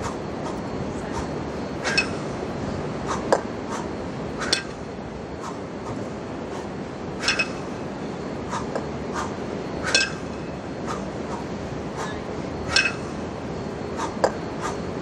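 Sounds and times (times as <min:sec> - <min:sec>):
steady background hiss: 0:00.0 - 0:15.0
kettlebells clinking: 0:01.9 - 0:02.3, 0:07.2 - 0:07.8, 0:09.9 - 0:10.5, 0:12.1 - 0:13.2.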